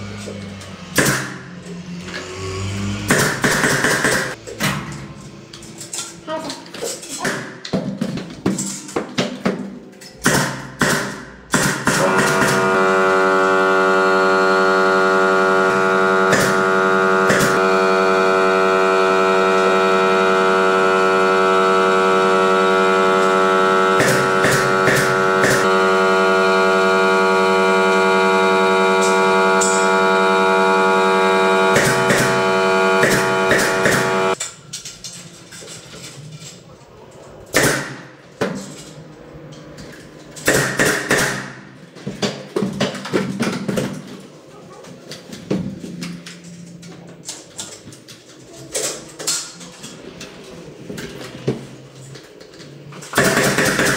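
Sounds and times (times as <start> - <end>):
air compressor droning hum: 0.0 - 6.0, 10.2 - 34.4.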